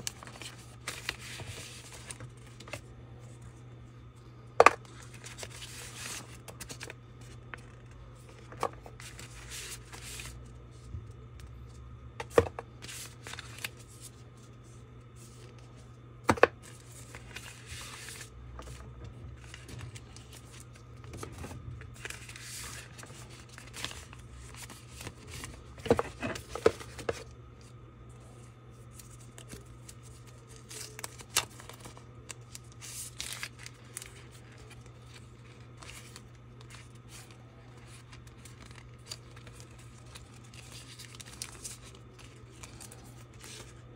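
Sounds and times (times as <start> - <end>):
paper rustling and sliding: 0.0 - 2.8, 5.1 - 7.8, 8.4 - 10.4, 16.6 - 18.8, 19.4 - 27.2, 32.6 - 43.8
steady low hum: 0.0 - 43.9.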